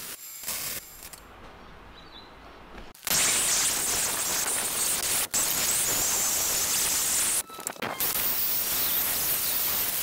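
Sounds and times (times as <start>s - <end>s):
drill spinning wire brush on metal: 8.0s - 10.0s.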